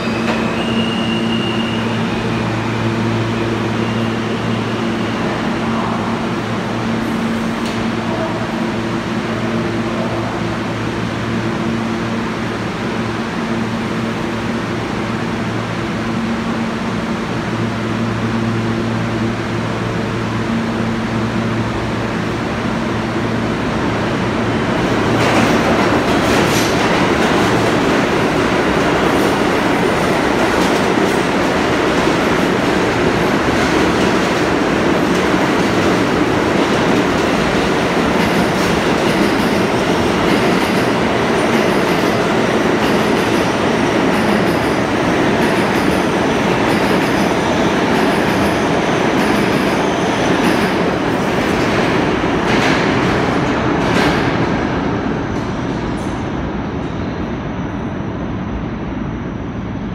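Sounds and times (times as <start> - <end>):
subway train rumbling in: 0.0 - 59.9.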